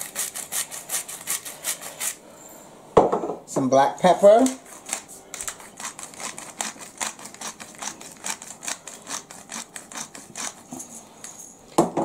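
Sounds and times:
pepper mill grinding: 0.0 - 2.2, 4.4 - 11.5.

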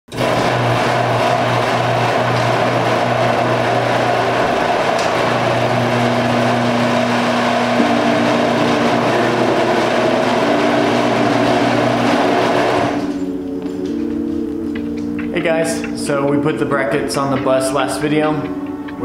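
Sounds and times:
garage door opener motor hum: 0.1 - 14.0.

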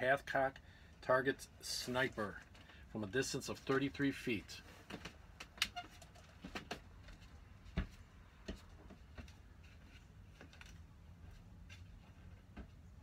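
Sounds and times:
footsteps on a hard floor: 6.4 - 10.5.

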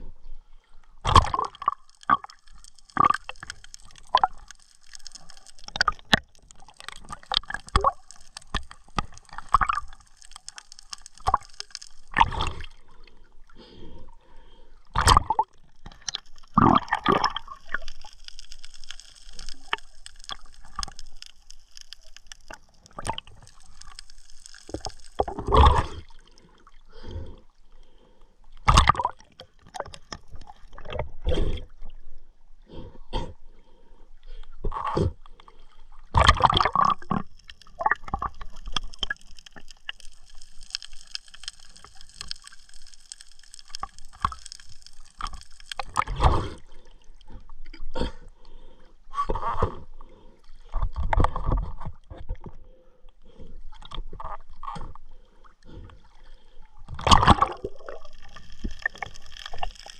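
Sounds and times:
sea water sloshing and gurgling: 0.0 - 59.9.

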